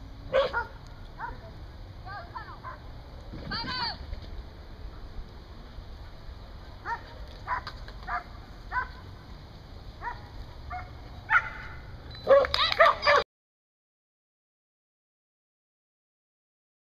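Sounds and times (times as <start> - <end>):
dog barking: 0.3 - 1.5, 6.8 - 9.0, 10.0 - 13.2.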